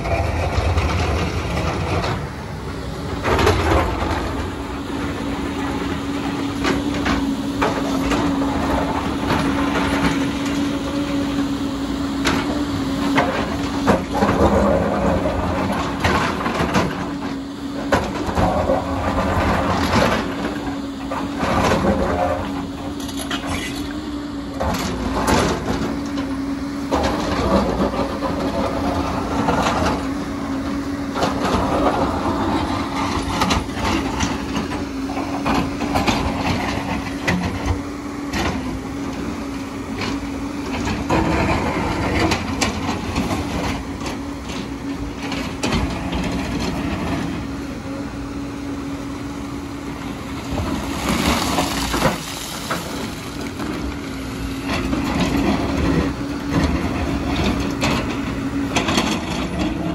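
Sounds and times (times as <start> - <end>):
excavator diesel engine humming: 0.0 - 59.9.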